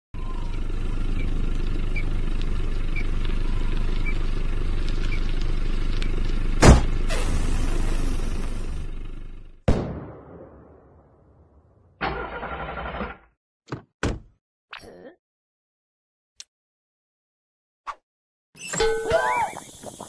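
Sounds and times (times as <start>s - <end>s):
cartoon car engine rumble: 0.2s - 9.7s, 12.0s - 13.3s
loud cartoon bang: 6.6s - 7.5s.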